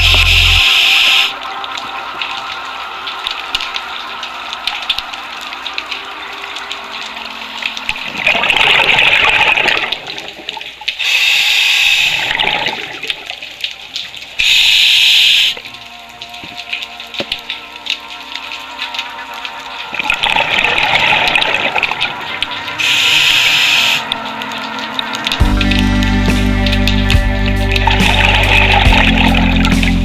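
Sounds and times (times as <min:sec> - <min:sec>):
scuba regulator hissing: 0:00.0 - 0:01.4, 0:11.0 - 0:12.3, 0:14.4 - 0:15.6, 0:22.8 - 0:24.1
faint crackling clicks: 0:09.8 - 0:20.4.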